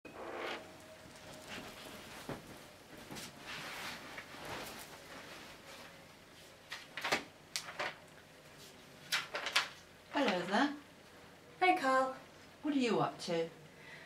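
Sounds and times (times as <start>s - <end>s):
rustling: 0.1s - 10.5s.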